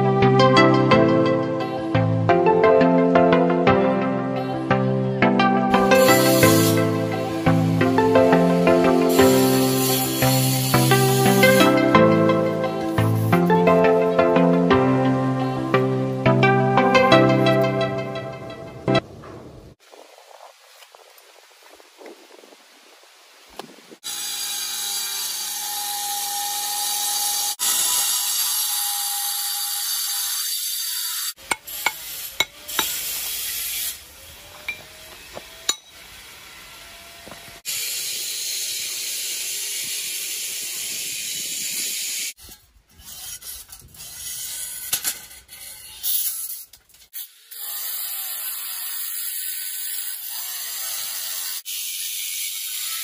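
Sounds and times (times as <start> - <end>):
angle grinder cutting stone: 5.8 - 13.4, 24.0 - 53.0.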